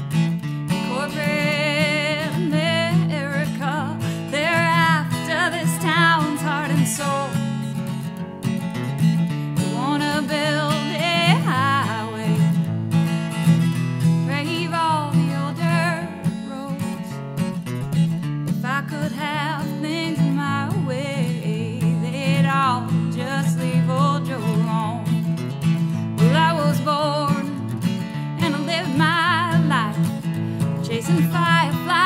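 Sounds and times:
acoustic guitar strumming: 0:00.0 - 0:32.0
woman singing with vibrato: 0:00.7 - 0:07.6, 0:09.6 - 0:12.6, 0:14.3 - 0:17.1, 0:18.6 - 0:25.2, 0:26.2 - 0:27.6, 0:28.3 - 0:32.0.

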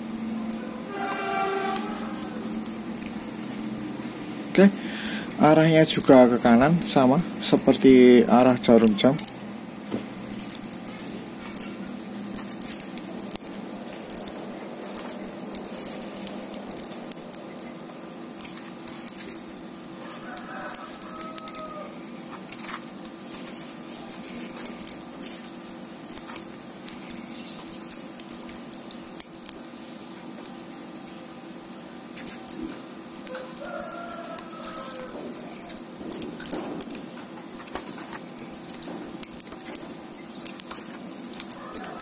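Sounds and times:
steady low hum: 0:00.0 - 0:42.0
metallic clicking of wire winding: 0:18.4 - 0:29.6, 0:33.2 - 0:37.0, 0:37.6 - 0:42.0.

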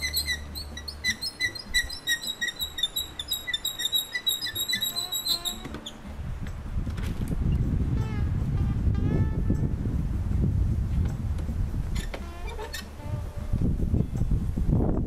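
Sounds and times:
high squeaky chirps: 0:00.0 - 0:06.1, 0:11.9 - 0:13.4
low rumbling noise: 0:05.4 - 0:15.0.

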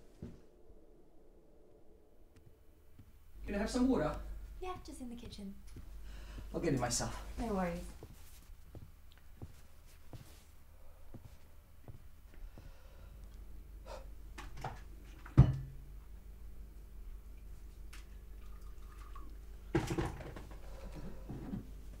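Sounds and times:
steady low hum: 0:00.0 - 0:22.0
water being poured: 0:18.4 - 0:19.3.

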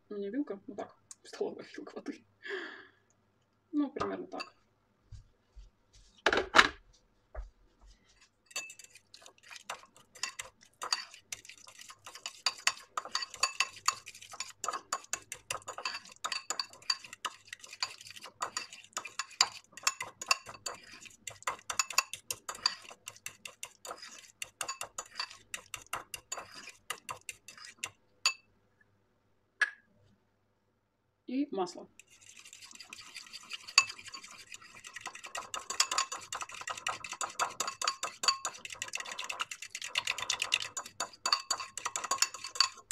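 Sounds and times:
fork beating paste in ceramic bowl: 0:07.8 - 0:28.5, 0:32.0 - 0:42.9.

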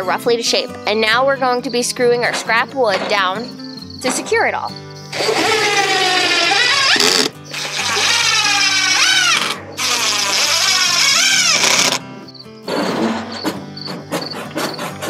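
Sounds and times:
background music: 0:00.0 - 0:15.0
impact driver driving screws: 0:05.1 - 0:12.0.

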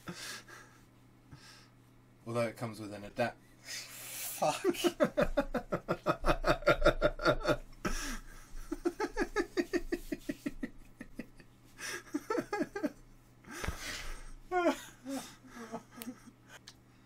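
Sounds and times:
men laughing hard: 0:04.4 - 0:13.0, 0:14.5 - 0:16.5.

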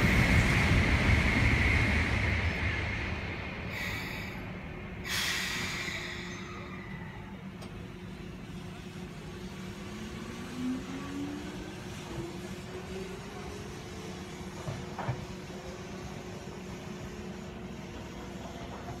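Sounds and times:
air brakes hissing: 0:03.7 - 0:07.0.

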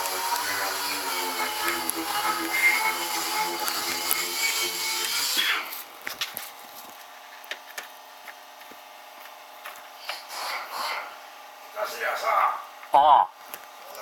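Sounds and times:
power tool motor whining: 0:00.0 - 0:06.0.

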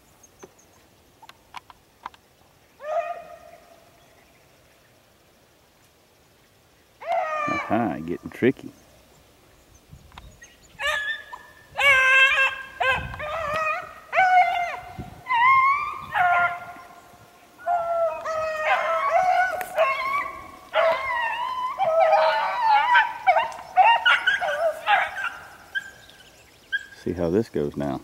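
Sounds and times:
hounds baying: 0:10.8 - 0:27.1.

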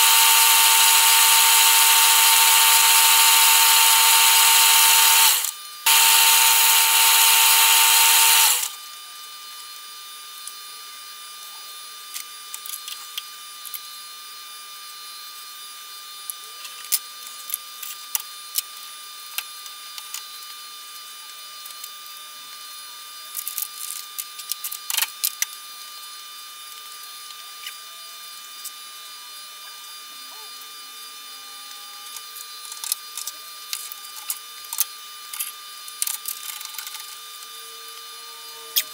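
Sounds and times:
metal lathe drilling: 0:00.0 - 0:08.8.

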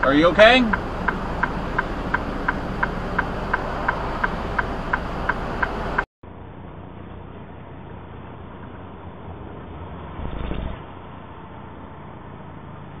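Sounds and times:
engine idling rumble: 0:00.0 - 0:13.0
moving truck road noise: 0:00.0 - 0:13.0
hazard light flasher ticking: 0:00.4 - 0:05.8.

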